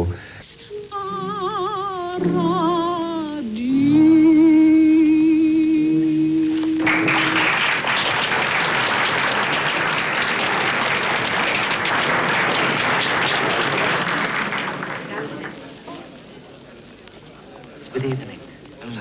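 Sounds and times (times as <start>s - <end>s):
singer holding a note: 0.5s - 7.4s
audience applause: 6.4s - 16.1s.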